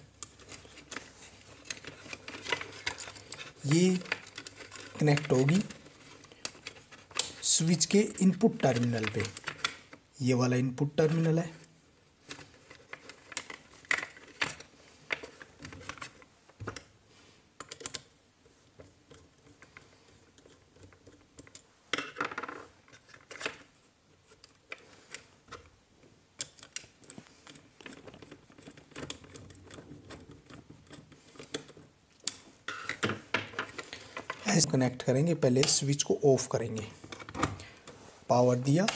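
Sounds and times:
hands handling plastic switch box: 0.0s - 10.0s.

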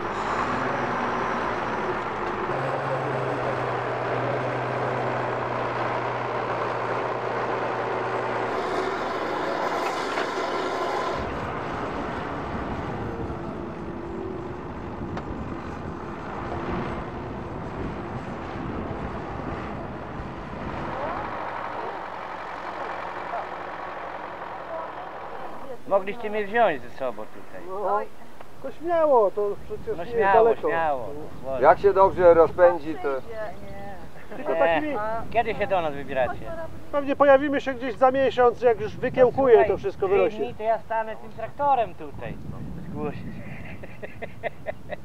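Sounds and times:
tractor engine running: 0.0s - 27.5s.

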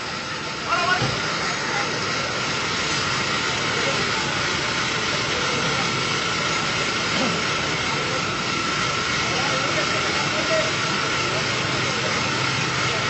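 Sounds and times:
engine running: 0.0s - 13.0s.

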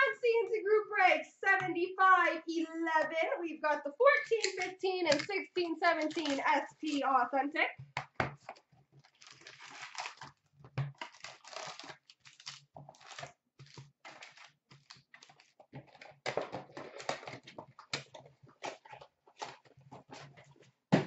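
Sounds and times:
foil card packs crinkling: 5.9s - 7.0s, 8.5s - 20.3s.

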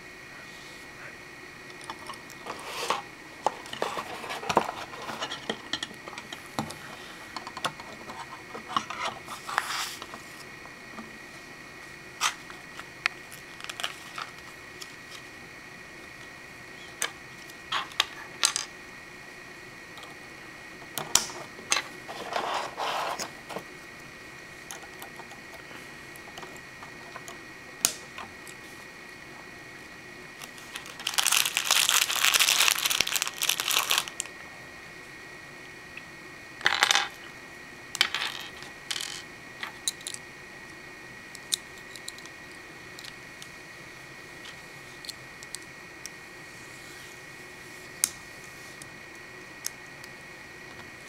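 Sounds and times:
faint high hum: 0.0s - 51.0s
plastic pieces scraping: 30.4s - 34.2s.

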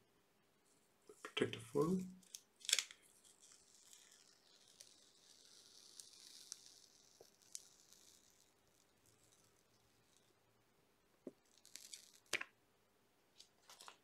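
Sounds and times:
plastic film peeling off: 2.2s - 10.3s, 11.4s - 12.5s.

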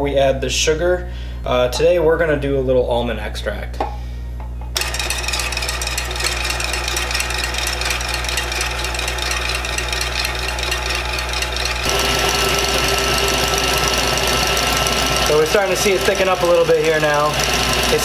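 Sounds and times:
stand mixer motor whining: 4.8s - 18.0s.

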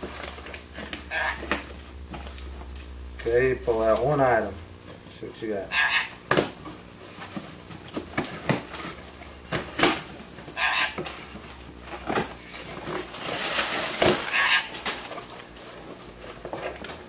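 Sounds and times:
paper packaging rustling: 0.0s - 5.0s, 6.6s - 17.0s
parrot squawks: 1.0s - 1.6s, 5.7s - 6.2s, 10.6s - 11.0s, 14.2s - 14.8s.

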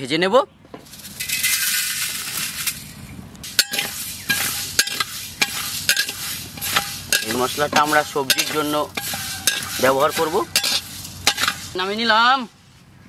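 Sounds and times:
seeds poured into metal wok: 0.9s - 12.0s
metal spatula scraping wok: 3.5s - 12.0s.

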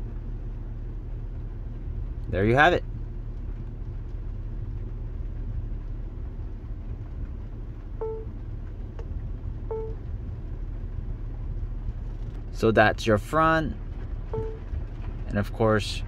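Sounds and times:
car engine idling: 0.0s - 16.0s
short electronic beeps: 8.0s - 8.3s, 9.7s - 10.0s, 14.3s - 14.6s.

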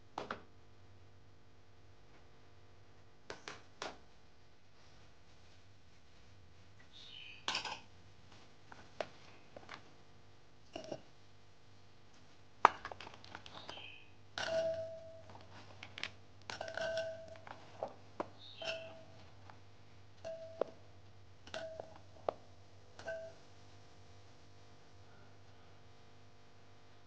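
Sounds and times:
cloves clinking against glass bowl: 7.5s - 7.9s, 14.4s - 15.3s, 16.5s - 17.5s, 18.4s - 19.2s, 20.2s - 20.8s, 21.5s - 22.0s, 23.0s - 23.4s.

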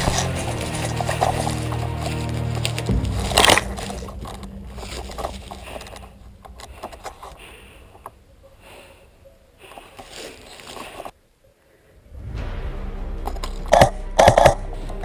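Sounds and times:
rustling through undergrowth: 0.0s - 11.2s.

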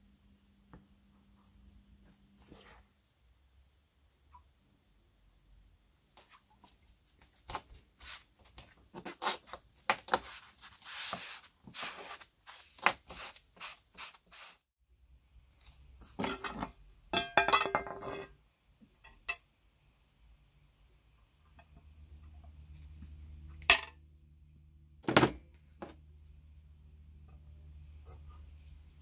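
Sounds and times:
sponge rubbing leather: 10.1s - 14.6s.

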